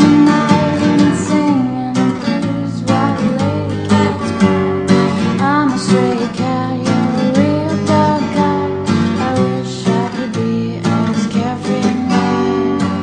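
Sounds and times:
acoustic guitar playing: 0.0s - 13.0s.

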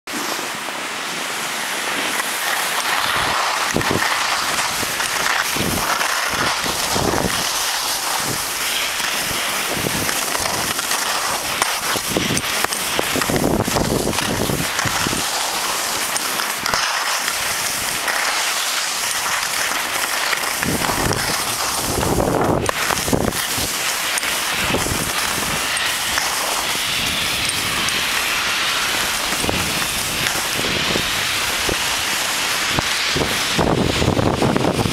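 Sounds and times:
skis scraping over snow: 0.1s - 34.9s
wind on microphone: 3.0s - 15.4s, 20.5s - 34.9s.

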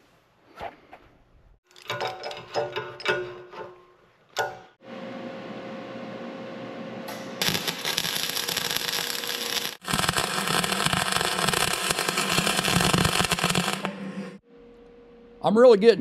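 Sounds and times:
welding arc crackling: 7.1s - 14.3s.

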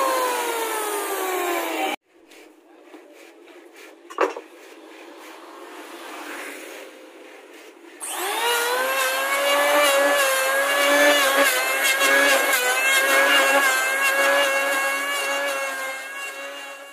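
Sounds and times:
electric hand planer whining: 0.0s - 2.0s, 8.0s - 16.9s.

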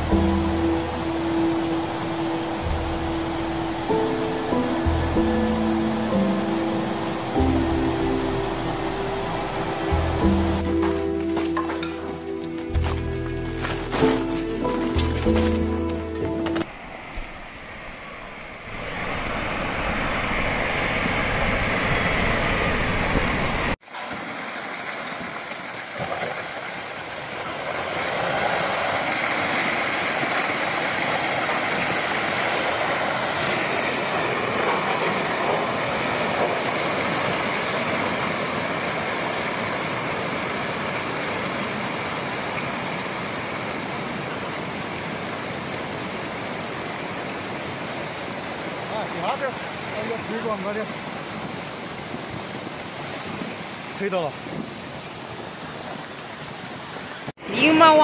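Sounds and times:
landslide roaring: 26.2s - 56.1s.

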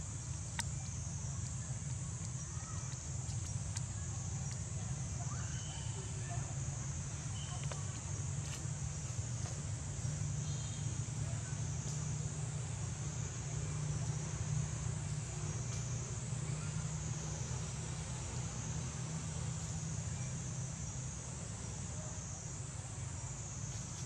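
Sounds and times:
faint clicks: 0.2s - 4.8s.

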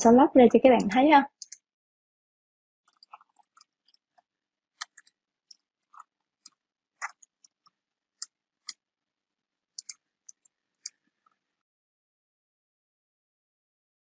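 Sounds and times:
keyboard typing clicks: 4.8s - 5.1s.

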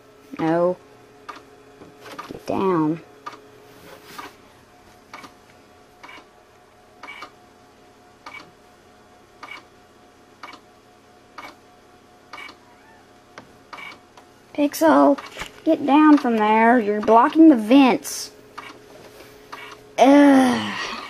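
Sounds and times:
faint steady hum: 0.0s - 21.0s
hard disk drive clicking: 6.0s - 6.3s, 7.0s - 7.4s, 8.2s - 8.6s, 9.4s - 9.7s, 10.4s - 10.7s, 11.3s - 11.6s, 12.3s - 12.7s, 13.3s - 14.3s, 18.5s - 18.8s, 19.5s - 19.9s.

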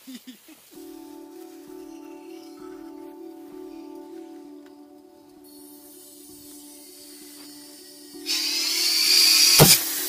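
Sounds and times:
gas hissing from valve: 8.3s - 10.0s
short sharp pop: 9.6s - 9.8s.

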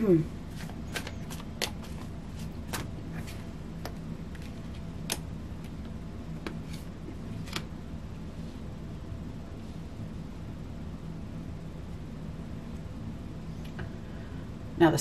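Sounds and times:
steady low hum: 0.0s - 15.0s
cards clicking and snapping: 0.6s - 5.8s.

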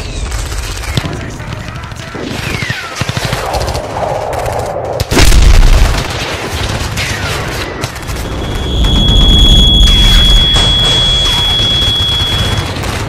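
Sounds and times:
explosion with deep rumble: 5.0s - 6.9s
machine-gun fire: 5.1s - 13.0s
falling shell whistle: 8.2s - 12.8s.

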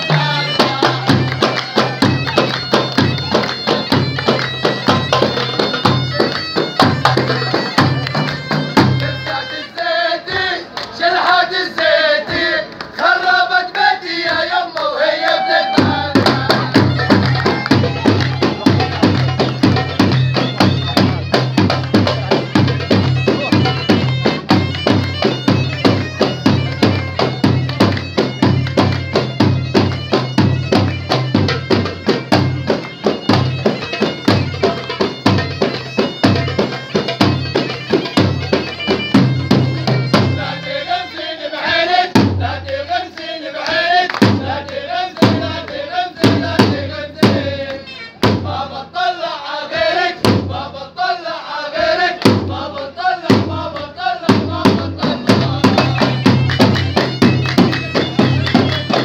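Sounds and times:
men chanting in unison: 0.0s - 2.1s, 8.9s - 22.8s, 40.1s - 57.2s
bagpipes playing folk tune: 0.0s - 10.2s, 15.9s - 42.6s, 44.4s - 48.6s, 55.2s - 59.0s.

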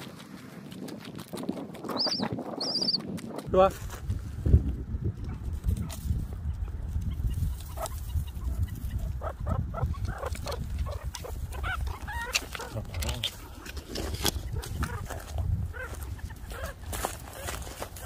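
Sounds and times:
meerkats chirping: 1.8s - 3.1s, 6.3s - 18.0s.

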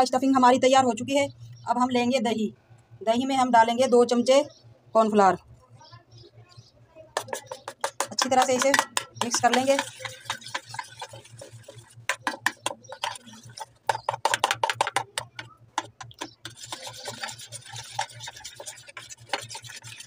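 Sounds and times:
batter stirred in metal bowl: 7.1s - 20.0s.

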